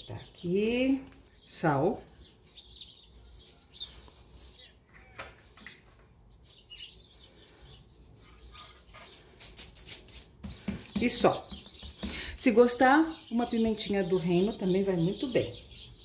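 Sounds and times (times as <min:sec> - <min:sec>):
faint bird chirps: 0:00.0 - 0:16.0
hands patting raw meat: 0:10.0 - 0:12.3.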